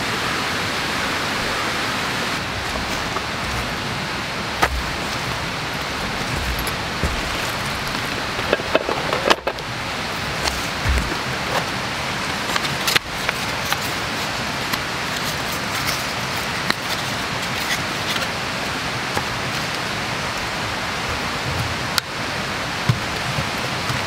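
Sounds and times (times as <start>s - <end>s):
water hissing: 0.8s - 14.4s
camp gear clicks and taps: 2.4s - 18.4s, 22.8s - 24.0s.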